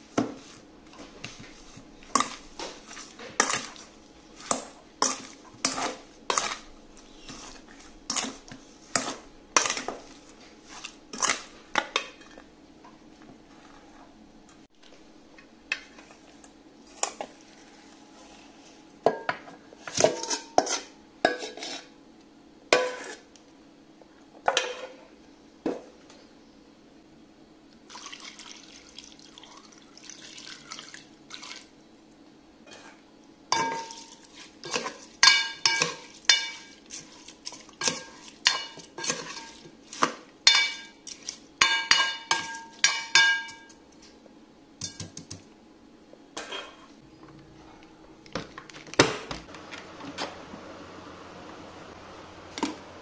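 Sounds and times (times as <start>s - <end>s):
steady low hum: 0.0s - 27.9s, 31.1s - 53.0s
water pouring into pot: 27.9s - 31.6s
spoon clinking in metal bowl: 33.6s - 36.9s, 40.5s - 41.0s, 41.6s - 43.8s.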